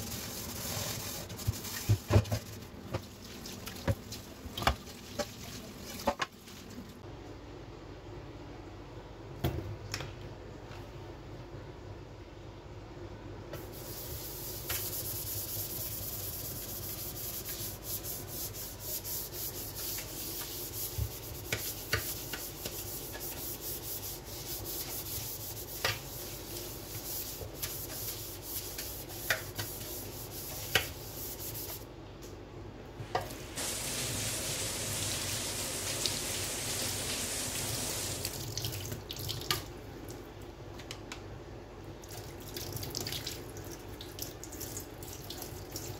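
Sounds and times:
brush scrubbing a sink: 0.0s - 6.8s, 13.6s - 31.9s, 33.2s - 38.4s
tap water running into sink: 33.1s - 39.7s.

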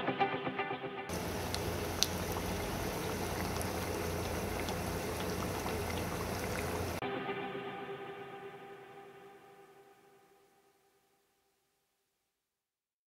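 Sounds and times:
pies sizzling in hot oil: 1.1s - 7.0s.

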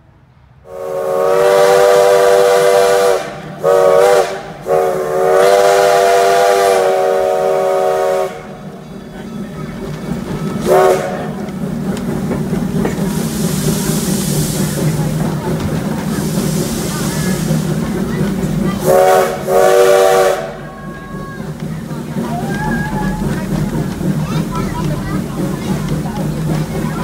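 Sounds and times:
steam whistle blasts: 0.7s - 8.7s, 10.6s - 11.3s, 18.8s - 21.2s
train wheels clattering on rails: 1.5s - 27.0s.

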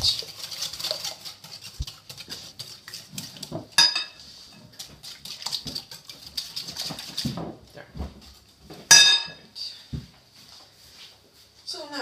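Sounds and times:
utensil scraping glass bowl: 0.0s - 7.3s
ringing clink on glass: 8.9s - 9.4s.

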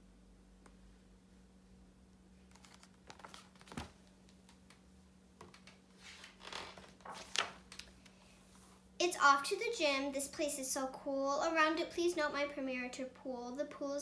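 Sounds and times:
paper rustling: 2.5s - 4.1s, 5.5s - 8.0s.

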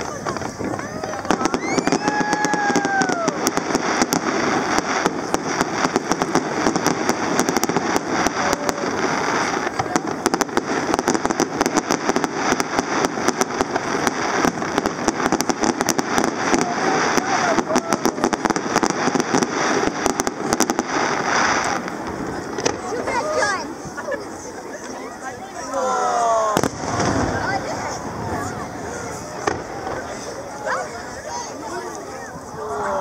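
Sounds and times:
fireworks bangs: 0.0s - 25.7s, 26.4s - 32.6s
fireworks crackling: 0.0s - 33.0s.

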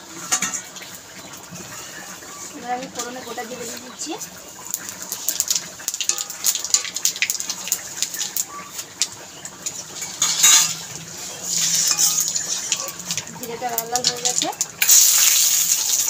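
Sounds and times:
spices sizzling in hot oil: 0.0s - 16.0s
metal spatula scraping pan: 9.6s - 13.3s.

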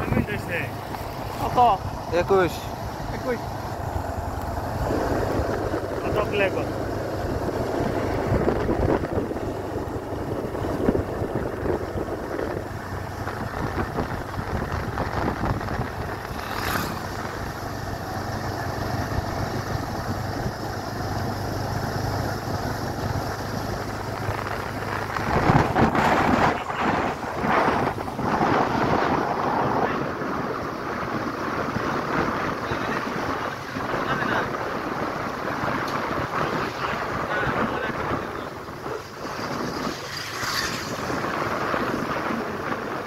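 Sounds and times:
motorcycle engine cruising: 0.0s - 43.0s
wind buffeting microphone: 0.0s - 43.0s.

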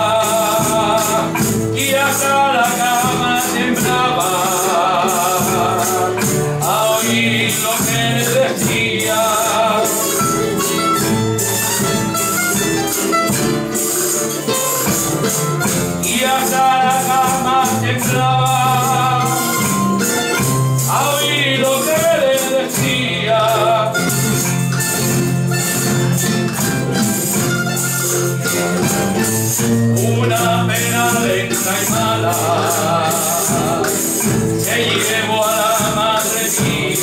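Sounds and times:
voices singing: 0.0s - 11.7s, 14.8s - 25.5s, 29.0s - 37.0s
instrumental folk accompaniment: 0.0s - 37.0s
tambourine beat: 0.0s - 37.0s.

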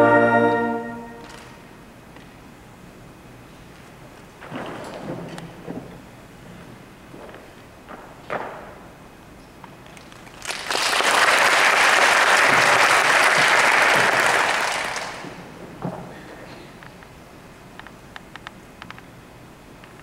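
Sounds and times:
audience applauding: 10.2s - 15.4s.

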